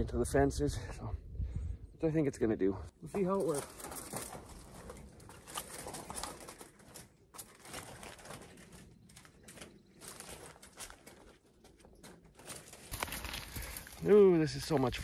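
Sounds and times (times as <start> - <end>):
wire fencing rustling unrolled: 3.2 - 15.0.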